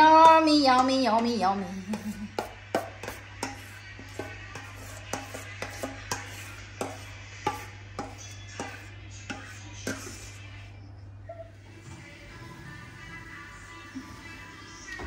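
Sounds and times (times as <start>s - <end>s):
spoon knocking against bowl: 1.9s - 10.1s
metal spoon scraping bowl: 1.9s - 10.6s.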